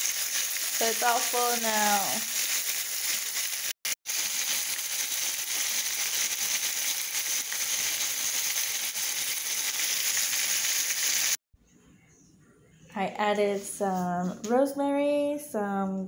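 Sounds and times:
chicken sizzling in hot oil: 0:00.0 - 0:11.4.

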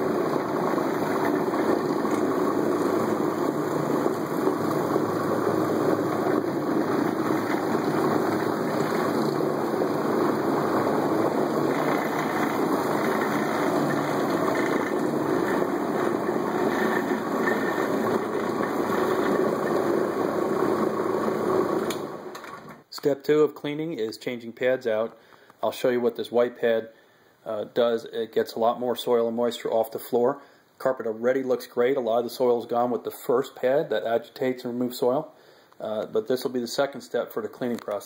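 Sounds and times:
carpet cleaning machine running: 0:00.0 - 0:22.7.

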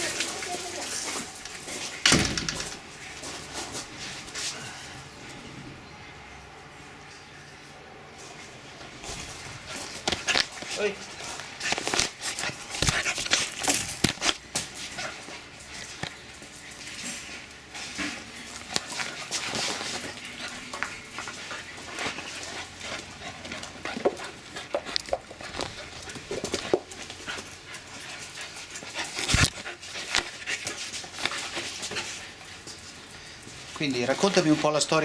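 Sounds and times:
dogs panting: 0:08.4 - 0:35.0.

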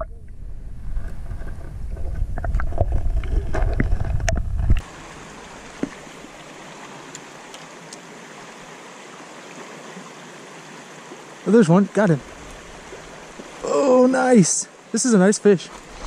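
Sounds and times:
muffled underwater rumbling: 0:00.0 - 0:04.8
shallow river rushing: 0:04.8 - 0:16.0.

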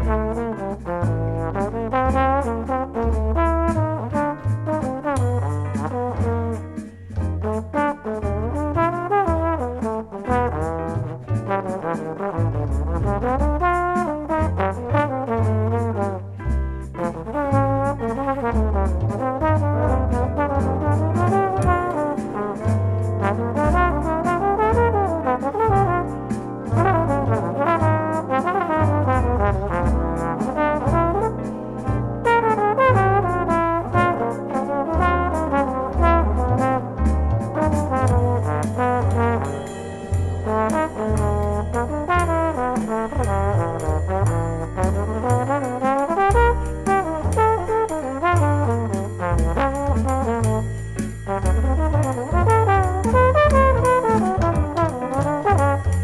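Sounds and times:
bass: 0:00.0 - 0:56.0
jazz trombone solo: 0:00.0 - 0:56.0
electronic drums: 0:33.3 - 0:56.0.

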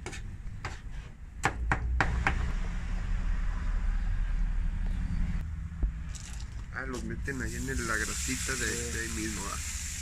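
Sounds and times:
steady hiss: 0:07.2 - 0:10.0.

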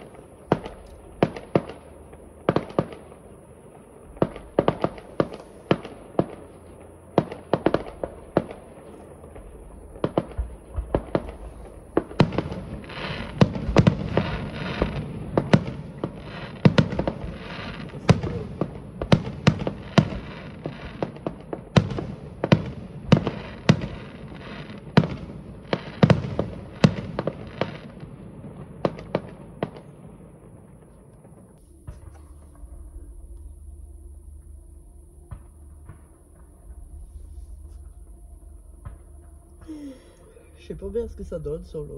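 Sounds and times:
firework shells exploding: 0:00.0 - 0:33.4
firework crackle: 0:00.0 - 0:41.9.

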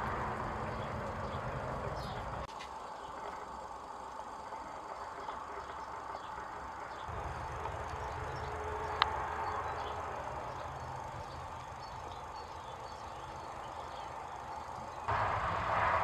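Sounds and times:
outdoor ambience: 0:00.0 - 0:16.0
rush of noise: 0:15.1 - 0:16.0.

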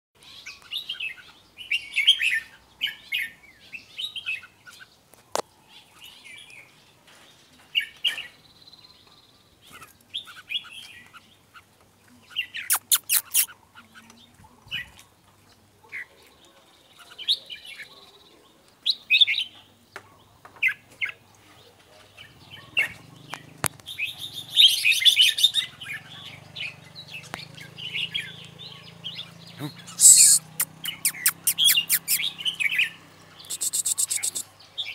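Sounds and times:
birds singing: 0:00.2 - 0:34.9
high bird chirps: 0:12.6 - 0:13.5, 0:29.6 - 0:34.5.

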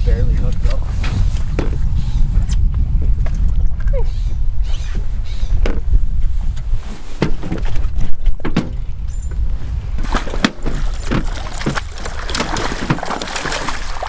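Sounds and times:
fish splashing in water: 0:10.0 - 0:14.0.

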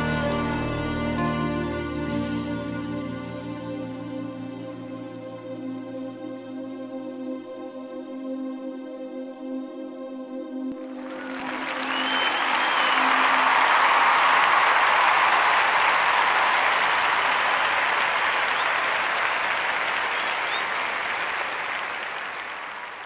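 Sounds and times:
audience applauding: 0:10.8 - 0:23.0.

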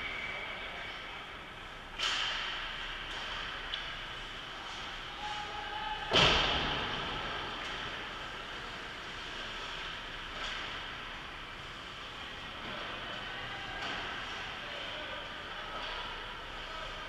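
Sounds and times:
ice rink noise: 0:00.0 - 0:17.0
loud echoing bang: 0:06.1 - 0:07.5.

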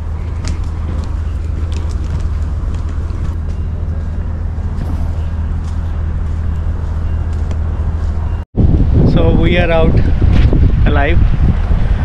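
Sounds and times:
engine humming steadily: 0:00.0 - 0:09.1.

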